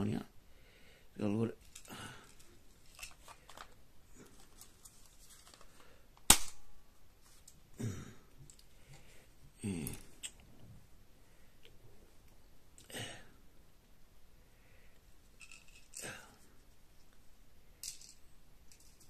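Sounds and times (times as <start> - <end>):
loud sharp snap: 6.2 - 6.7
low murmured vocal sounds: 9.5 - 10.6.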